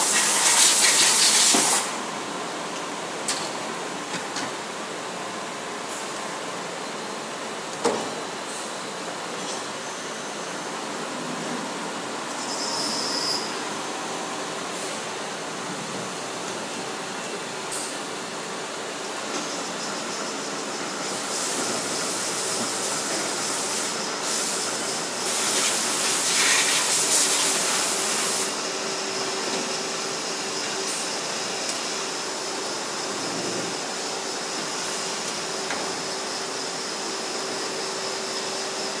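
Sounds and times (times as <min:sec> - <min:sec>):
loud hiss: 0:00.0 - 0:02.0, 0:21.1 - 0:28.6
factory machinery humming: 0:01.2 - 0:39.0.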